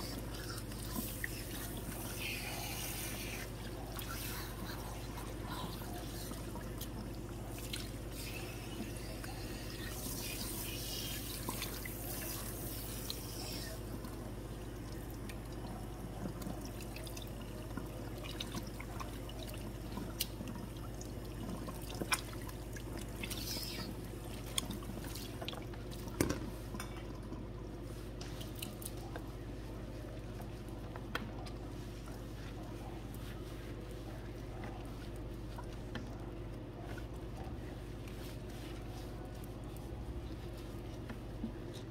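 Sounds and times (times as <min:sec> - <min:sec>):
sprayer water running through hair: 0:00.0 - 0:06.4, 0:07.4 - 0:14.0
low steady hum: 0:00.0 - 0:41.9
small clicks and splashes: 0:13.9 - 0:29.4.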